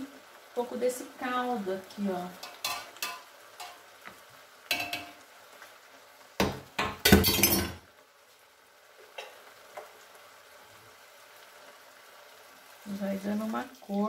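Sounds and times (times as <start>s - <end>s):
pots and utensils clattering: 2.4s - 3.9s, 4.7s - 5.2s, 6.4s - 7.8s.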